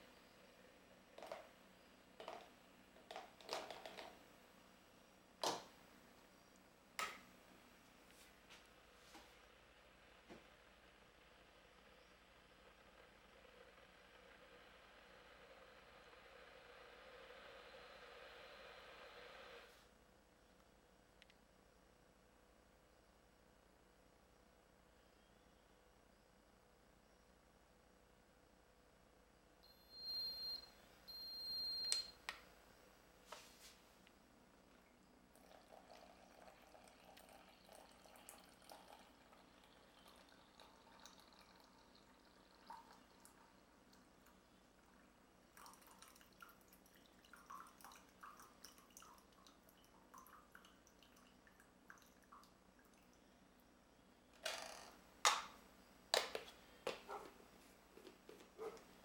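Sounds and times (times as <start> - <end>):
liquid trickling and dripping: 35.3 - 53.4.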